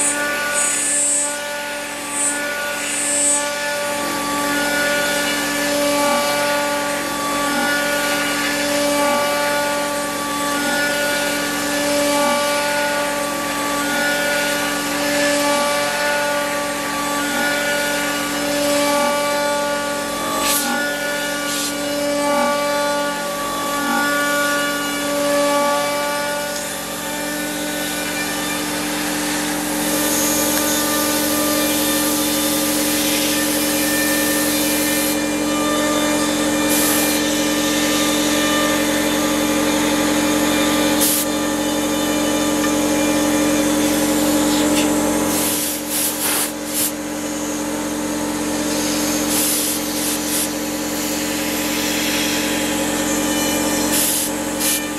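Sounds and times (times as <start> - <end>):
router spindle whine: 0.0 - 54.9
metal cutting hiss and chatter: 44.2 - 47.0, 48.9 - 54.9.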